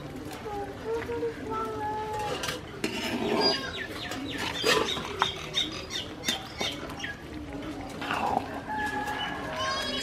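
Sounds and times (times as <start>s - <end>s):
metal ladle scraping a pot: 2.1s - 5.7s
birds chirping: 3.2s - 7.5s.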